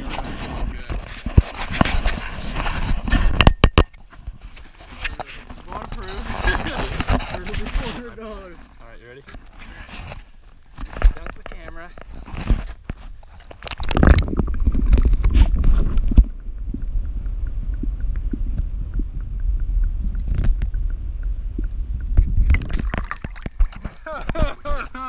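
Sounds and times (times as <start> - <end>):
muffled underwater rumbling: 12.0 - 25.0
faint regular ticking: 16.0 - 25.0
water splashing: 22.1 - 25.0.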